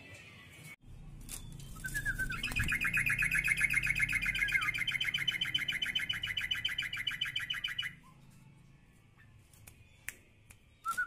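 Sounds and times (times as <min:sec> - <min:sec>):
bird rapid trill: 0:01.4 - 0:08.0.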